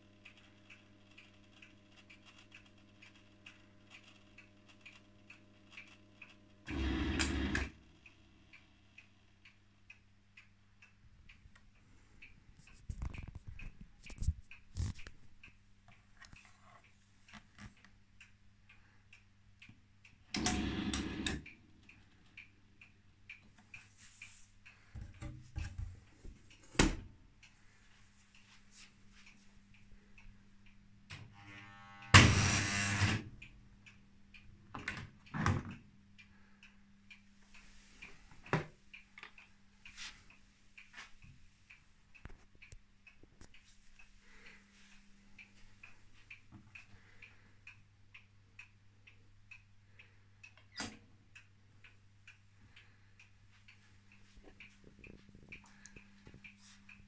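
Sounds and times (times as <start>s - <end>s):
washing machine humming: 6.5s - 8.5s.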